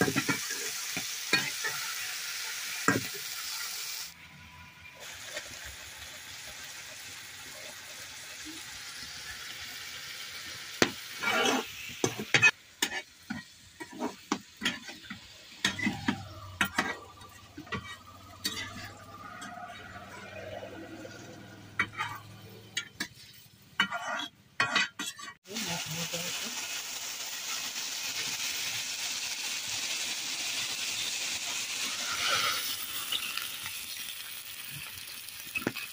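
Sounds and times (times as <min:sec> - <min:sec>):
metal utensil scraping a pan: 0:00.0 - 0:02.0, 0:10.8 - 0:25.4, 0:31.8 - 0:34.1
vegetables sizzling in a pan: 0:00.0 - 0:23.8, 0:25.4 - 0:35.9.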